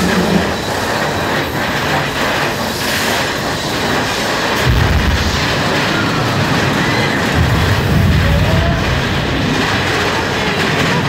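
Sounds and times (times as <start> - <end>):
roller coaster cars clattering: 0.0 - 11.0
deep explosion rumble: 4.6 - 11.0.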